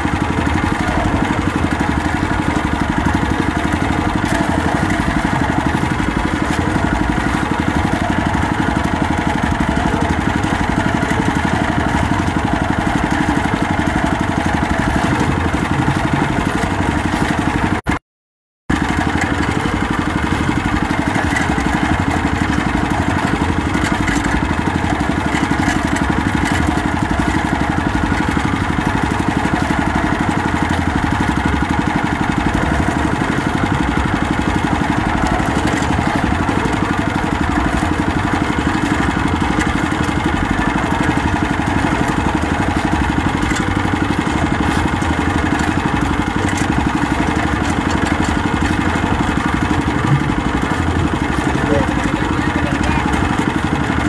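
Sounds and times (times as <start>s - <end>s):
boat engine droning: 0.0s - 18.0s, 18.7s - 54.0s.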